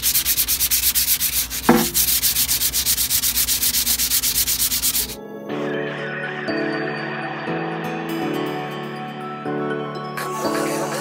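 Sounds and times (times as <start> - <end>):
sandpaper scraping metal pipe: 0.0 - 5.2
background music: 5.0 - 11.0.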